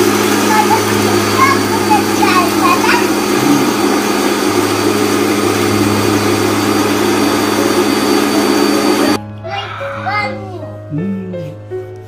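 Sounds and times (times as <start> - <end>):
blender grinding spices: 0.0 - 9.2.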